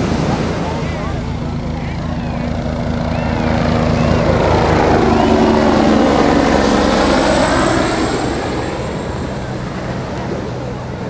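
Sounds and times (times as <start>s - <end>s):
helicopter flying low past: 0.0s - 11.0s.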